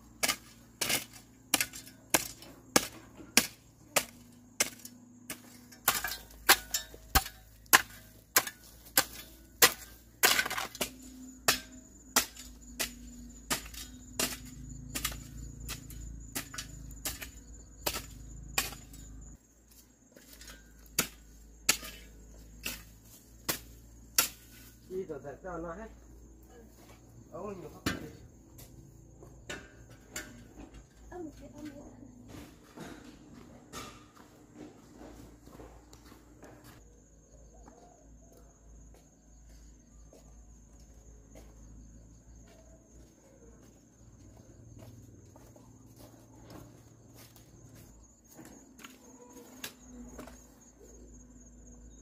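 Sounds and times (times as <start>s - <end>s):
hoe chopping into dry earth: 0.2s - 10.9s, 20.2s - 24.8s.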